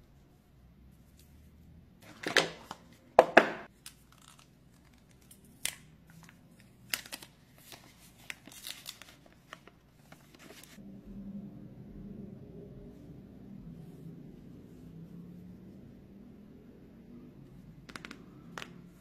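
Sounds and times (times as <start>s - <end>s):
plastic film peeling crinkles: 3.8s - 10.8s
packaging rustling and scraping: 6.1s - 10.8s.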